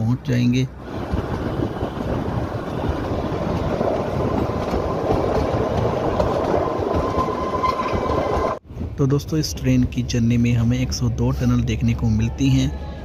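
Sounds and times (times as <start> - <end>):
train wheels rumbling on rail: 0.7 - 9.0.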